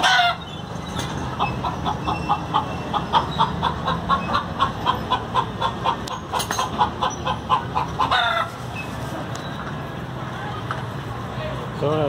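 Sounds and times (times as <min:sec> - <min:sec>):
hen clucking: 0:00.0 - 0:00.6, 0:01.2 - 0:09.1.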